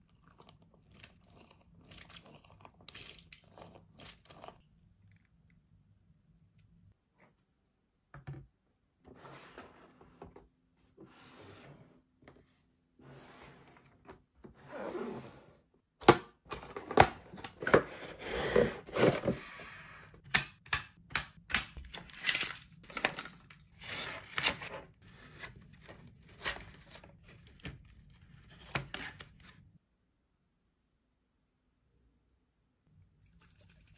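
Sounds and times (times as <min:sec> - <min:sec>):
cardboard sliding and rubbing: 0:09.1 - 0:15.6.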